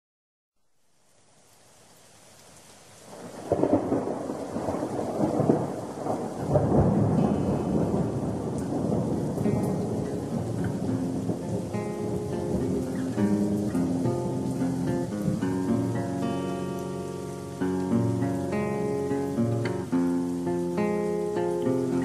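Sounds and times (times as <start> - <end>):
rain: 0.6 - 22.0
rolling thunder: 3.1 - 16.0.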